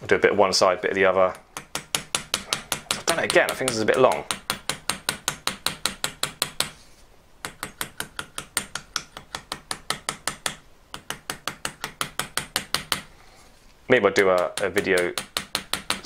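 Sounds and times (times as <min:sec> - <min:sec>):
light hammer tapping metal: 0:01.6 - 0:06.7, 0:14.3 - 0:16.0.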